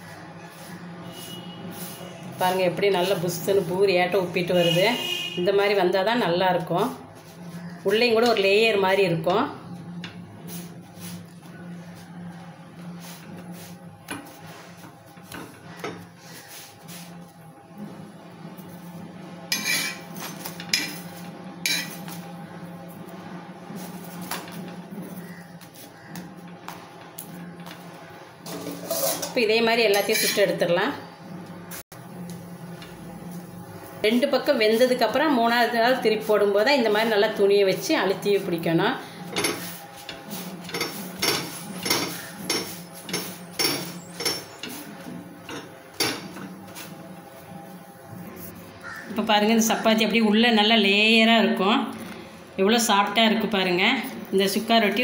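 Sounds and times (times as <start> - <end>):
metal spatula scraping a griddle: 19.4 - 22.3, 28.4 - 30.6, 39.2 - 47.1.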